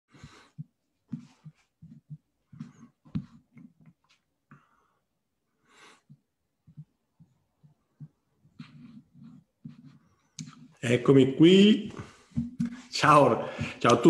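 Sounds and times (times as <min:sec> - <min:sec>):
person breathing: 0:00.1 - 0:01.5, 0:04.5 - 0:06.2, 0:11.9 - 0:13.8.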